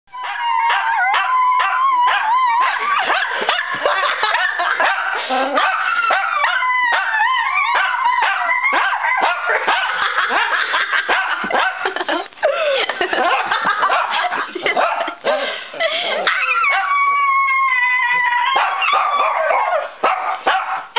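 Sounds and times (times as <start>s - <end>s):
small dogs howling and yipping: 0.1s - 10.5s, 16.2s - 20.8s.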